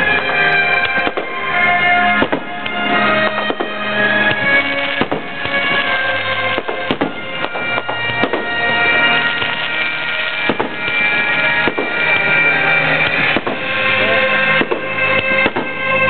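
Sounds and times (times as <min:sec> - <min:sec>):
firework shells bursting: 0:00.0 - 0:16.0.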